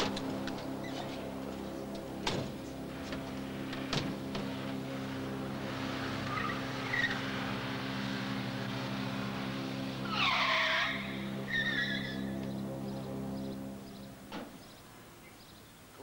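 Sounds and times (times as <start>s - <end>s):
van engine running: 0.0s - 15.5s
tyres squealing: 10.1s - 12.3s.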